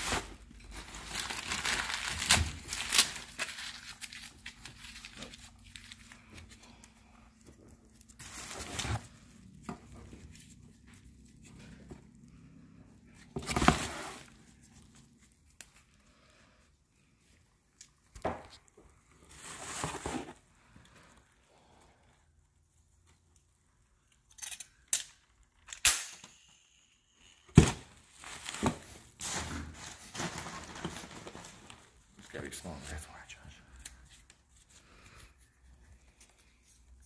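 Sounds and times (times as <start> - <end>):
bubble wrap crinkling: 0.0 - 12.2, 13.1 - 21.4, 27.6 - 33.0.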